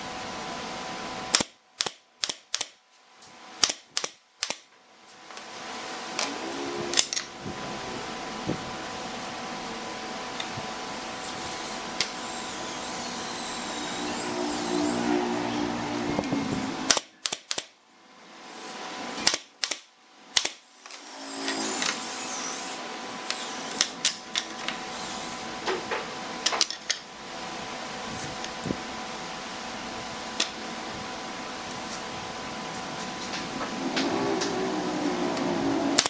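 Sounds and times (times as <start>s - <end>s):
steady background hum: 0.0s - 36.0s
nail gun firing: 1.3s - 2.8s, 3.6s - 4.7s, 16.9s - 17.7s, 19.2s - 22.0s.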